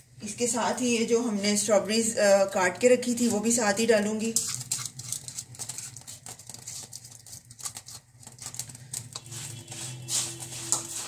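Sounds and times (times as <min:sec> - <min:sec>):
spatula scraping and tapping: 0:02.8 - 0:11.0.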